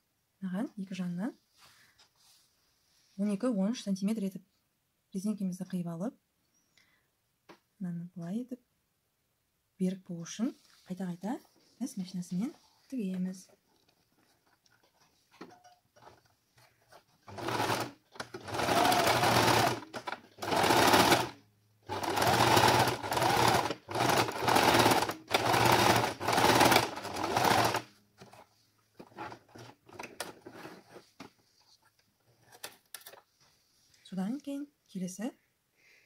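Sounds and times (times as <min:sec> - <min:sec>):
sewing machine stitching: 0:16.8 - 0:28.4.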